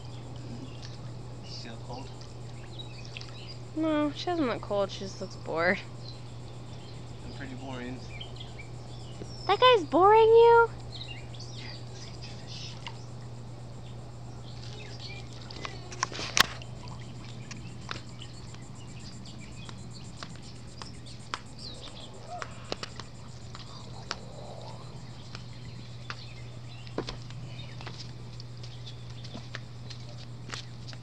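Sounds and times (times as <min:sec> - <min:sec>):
steady low hum: 0:00.0 - 0:31.0
pool water lapping and dripping: 0:00.1 - 0:05.7, 0:12.2 - 0:13.3, 0:14.5 - 0:26.7
faint chirps: 0:10.7 - 0:27.9.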